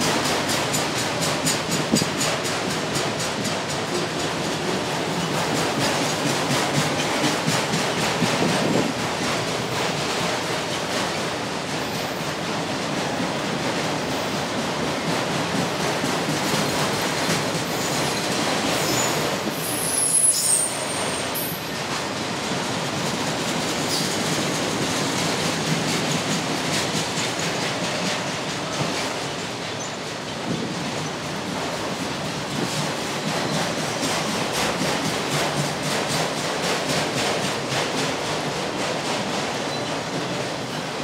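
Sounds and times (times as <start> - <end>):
freight cars rumbling on rails: 0.0 - 41.0
wheel squeal: 17.7 - 21.6.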